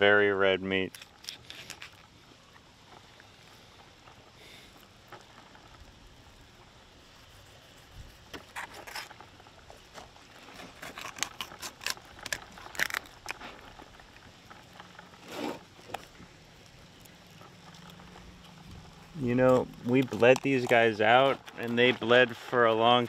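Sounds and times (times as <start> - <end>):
rustling: 0.9 - 23.0
knife cutting fish: 8.3 - 9.1.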